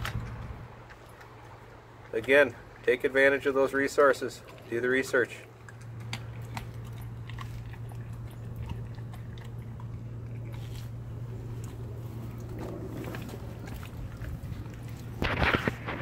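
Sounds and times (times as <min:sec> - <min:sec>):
dog chewing raw meat: 0:00.0 - 0:16.0
steady low hum: 0:00.0 - 0:16.0
teeth crunching on bone: 0:04.0 - 0:16.0.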